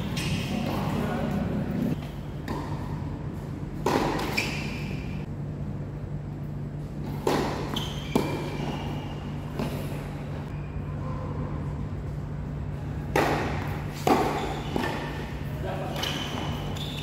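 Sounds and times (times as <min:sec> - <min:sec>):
tennis ball bouncing: 0:00.0 - 0:01.1, 0:01.8 - 0:05.2, 0:07.0 - 0:10.2, 0:13.0 - 0:17.0
rackets striking tennis ball: 0:00.0 - 0:05.3, 0:07.0 - 0:10.2, 0:13.0 - 0:17.0.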